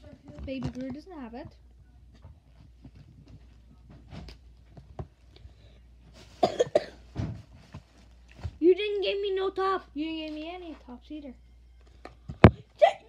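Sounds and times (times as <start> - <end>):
person coughing: 6.4 - 7.0.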